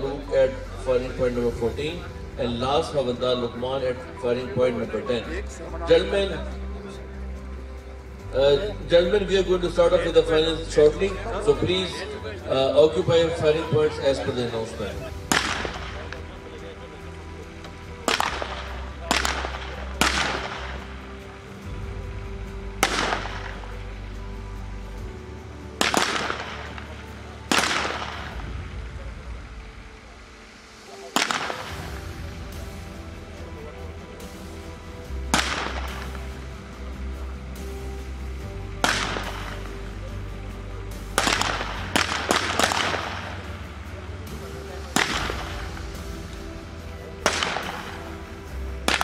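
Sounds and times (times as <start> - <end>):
background music: 0.0 - 49.0
rifle shots with echo: 15.2 - 16.2, 18.1 - 20.8, 22.8 - 23.7, 25.8 - 28.5, 31.1 - 31.9, 35.3 - 36.2, 38.8 - 39.6, 41.2 - 43.5, 44.9 - 45.7, 47.2 - 48.0.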